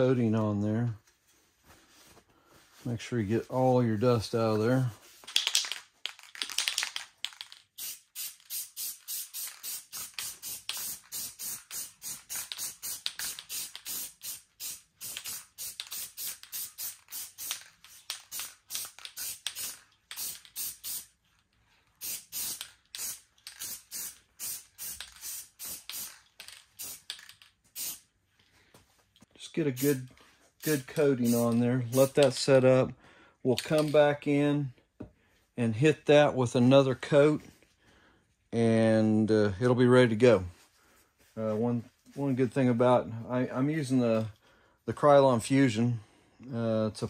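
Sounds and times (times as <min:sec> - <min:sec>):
spray paint hissing bursts: 0:07.8 - 0:21.2, 0:22.0 - 0:28.1, 0:30.6 - 0:32.3.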